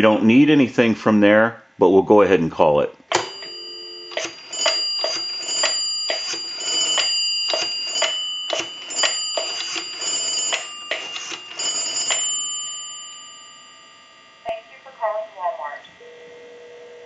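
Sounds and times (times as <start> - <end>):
steady high tone: 3.2 - 17.0
rotary dial clicking: 4.1 - 12.5.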